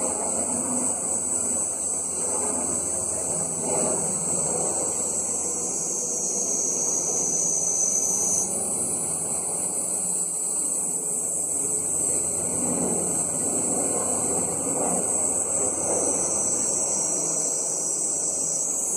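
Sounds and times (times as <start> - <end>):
cicadas buzzing: 0.0 - 18.9
helicopter drone: 0.0 - 18.9.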